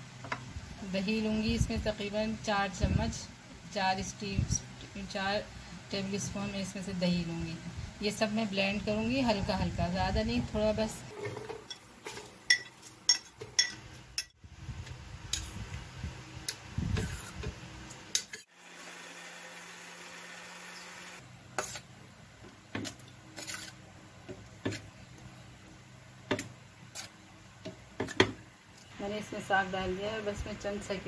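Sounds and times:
electric blender running: 18.5 - 21.2.

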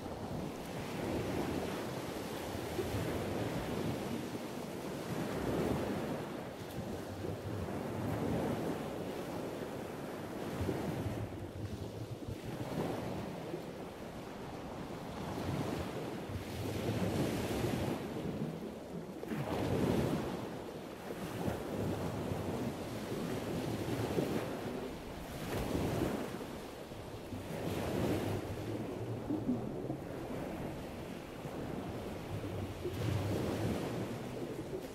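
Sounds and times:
ocean waves washing: 12.4 - 34.9.

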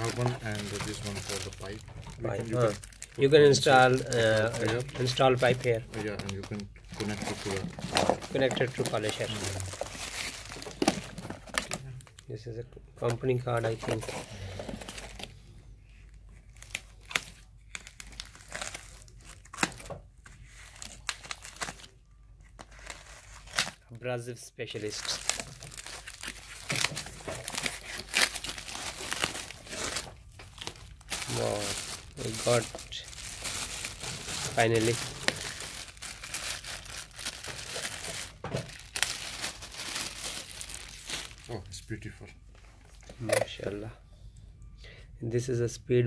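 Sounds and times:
plastic bag crinkling: 0.0 - 12.2, 24.8 - 41.8
packing material rustling: 0.0 - 12.3, 13.0 - 23.8, 24.7 - 41.8.

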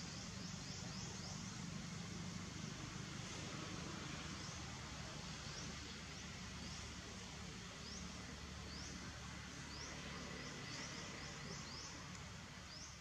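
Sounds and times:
steady hiss and low rumble: 0.0 - 13.0.

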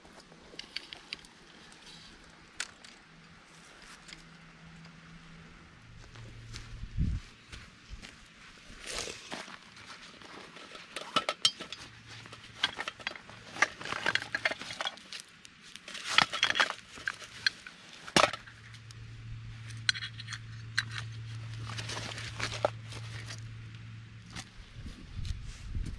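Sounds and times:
metal tins clinking: 10.6 - 15.0
canvas pouch rustling: 21.3 - 23.4
wax paper crinkling: 21.3 - 23.5.

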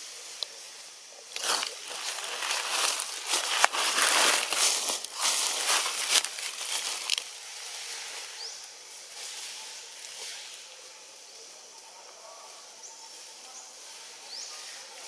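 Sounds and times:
crackling crunching rustle: 0.0 - 10.7
soft outdoor hiss: 0.0 - 15.0.

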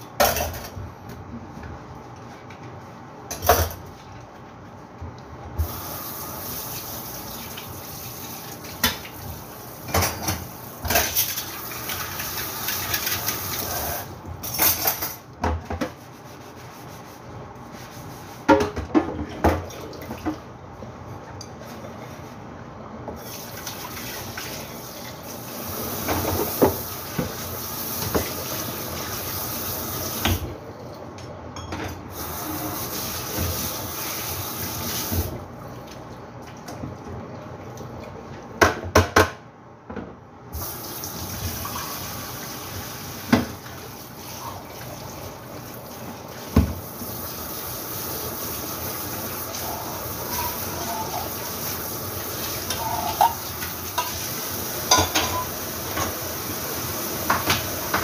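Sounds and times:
dishes clinking and clattering: 0.2 - 0.8, 3.3 - 3.9, 9.9 - 15.8, 31.6 - 32.0, 52.6 - 54.2, 54.8 - 56.2.

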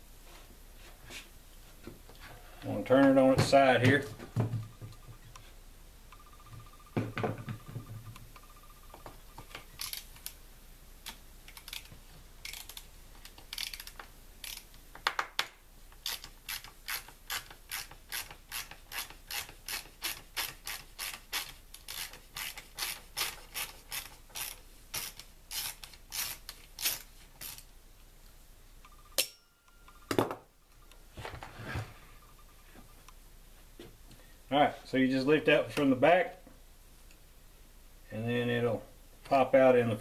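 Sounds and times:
ratcheting screwdriver clicking: 11.5 - 14.7.

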